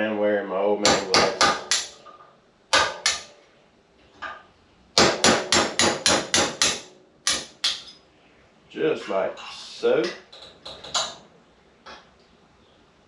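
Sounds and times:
hammer tapping on metal: 0.8 - 3.3, 5.0 - 8.0.

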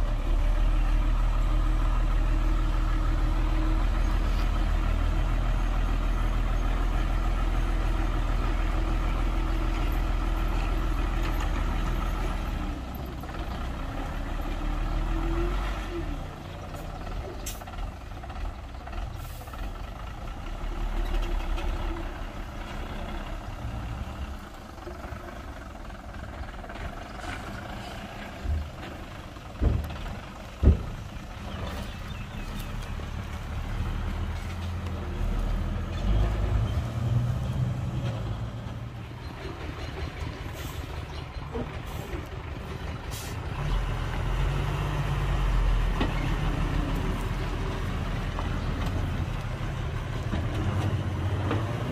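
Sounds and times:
dump truck diesel engine: 0.0 - 51.9
heavy thumps: 29.6 - 31.1.

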